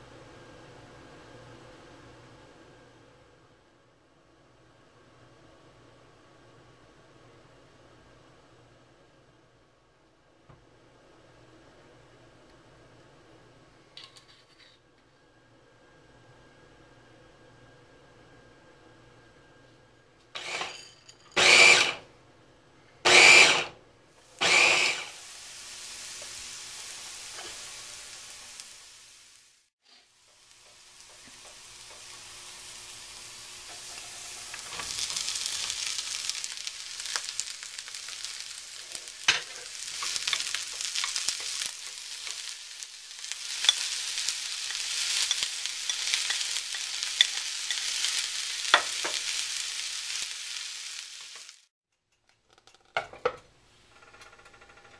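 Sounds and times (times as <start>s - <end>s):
vegetables sizzling in frying pan: 20.4s - 22.0s, 23.1s - 51.7s.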